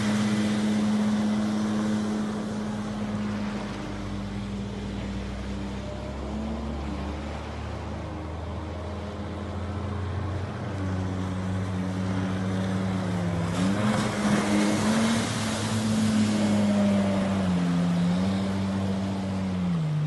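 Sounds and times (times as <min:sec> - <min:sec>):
boat engine droning: 0:00.0 - 0:20.0
water spray rushing: 0:12.7 - 0:19.7.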